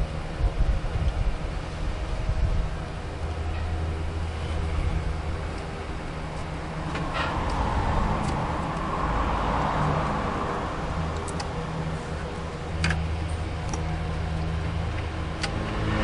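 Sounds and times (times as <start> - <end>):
car engine humming: 0.0 - 16.0
sharp clicks: 11.2 - 11.5.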